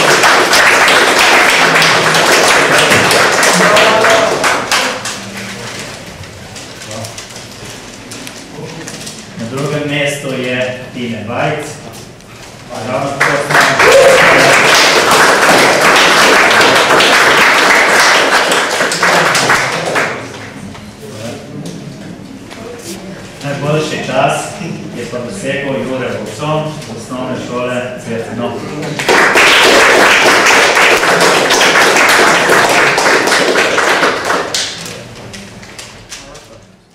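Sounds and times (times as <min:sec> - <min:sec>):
audience applauding: 0:00.0 - 0:05.9, 0:13.2 - 0:20.6, 0:29.0 - 0:35.0.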